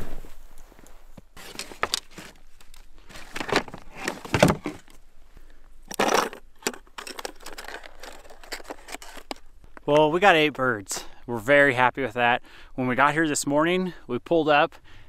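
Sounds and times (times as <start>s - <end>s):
gloved hands rustling gear: 0.0s - 10.2s.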